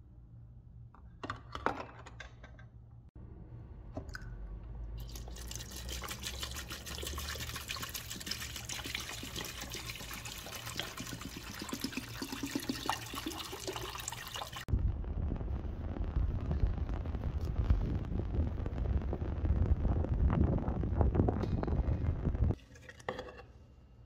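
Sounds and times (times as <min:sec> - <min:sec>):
liquid pouring into plastic bowl: 0:05.0 - 0:14.7.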